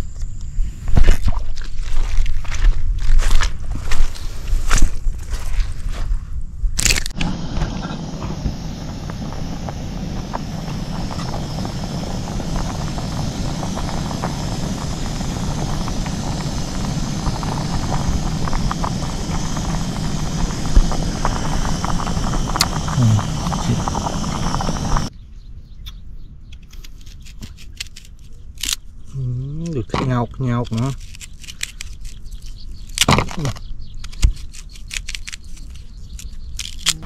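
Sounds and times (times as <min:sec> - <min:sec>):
constant hiss: 0:06.9 - 0:25.1
vehicle engine rumble: 0:07.1 - 0:25.1.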